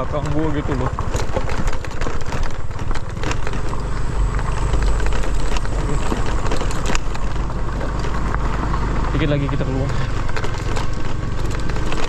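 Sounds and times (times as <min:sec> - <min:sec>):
motorcycle engine running: 0:00.0 - 0:12.0
motorcycle knocks and rattles: 0:00.0 - 0:12.0
steady rushing noise: 0:00.0 - 0:12.0.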